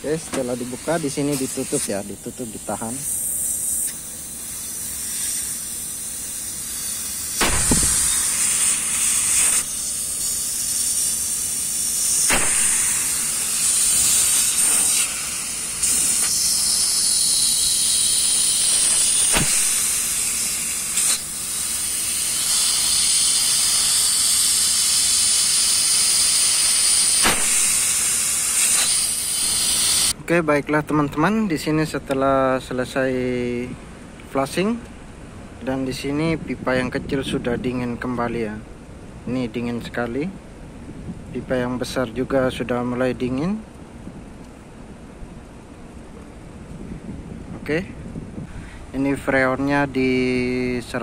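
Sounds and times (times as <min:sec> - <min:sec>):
refrigerant hissing from pipe: 0:00.0 - 0:30.2.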